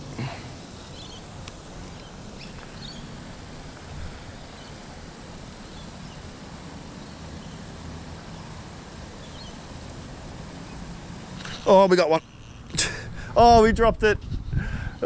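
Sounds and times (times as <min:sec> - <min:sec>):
low outdoor background rumble: 0:00.0 - 0:15.0
faint high bird chirps: 0:00.8 - 0:01.2.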